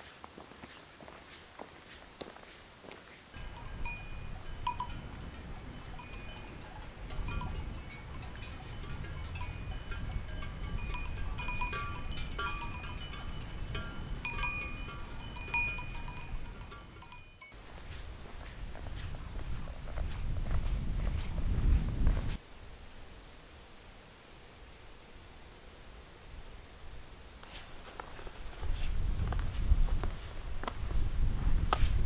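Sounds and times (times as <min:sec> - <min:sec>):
cowbells clanking: 0:03.4 - 0:17.6.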